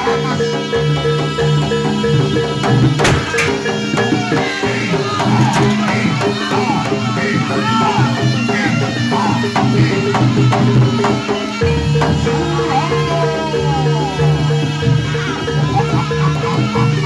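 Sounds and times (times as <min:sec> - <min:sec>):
gliding melodic line: 0:00.0 - 0:05.8, 0:09.9 - 0:17.0
drums keeping a steady beat: 0:00.0 - 0:17.0.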